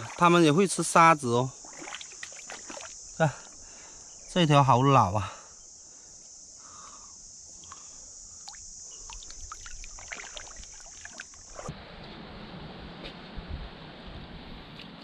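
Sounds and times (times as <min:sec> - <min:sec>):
high insect-like hiss: 0:00.0 - 0:11.7
water trickling among rocks: 0:01.5 - 0:03.6, 0:07.6 - 0:11.7.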